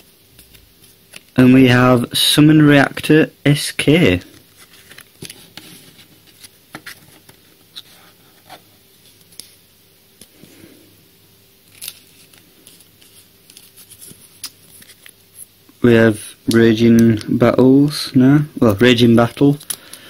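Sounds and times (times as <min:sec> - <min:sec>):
faint electrical buzz: 0:00.0 - 0:20.0
cards clicking and rustling: 0:11.7 - 0:15.2, 0:18.6 - 0:20.0.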